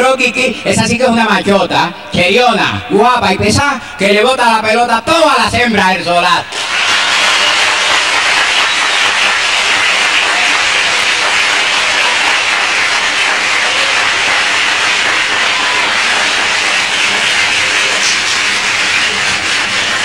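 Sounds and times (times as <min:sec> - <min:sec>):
audience applauding: 0:06.5 - 0:20.0.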